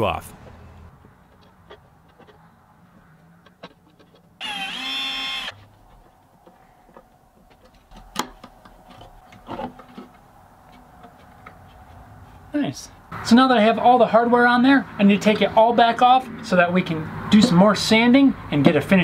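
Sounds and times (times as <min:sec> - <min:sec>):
power tool motor whining: 0:04.4 - 0:05.6.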